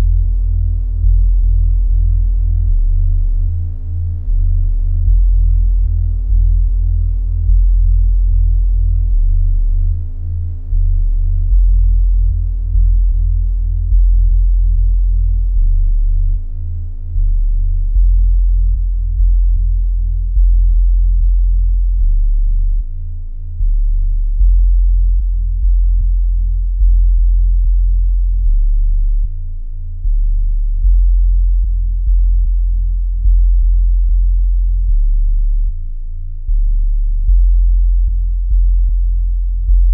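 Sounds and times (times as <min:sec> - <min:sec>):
deep bass pulse: 0:00.0 - 0:39.9
steady low electronic tone: 0:00.0 - 0:39.9.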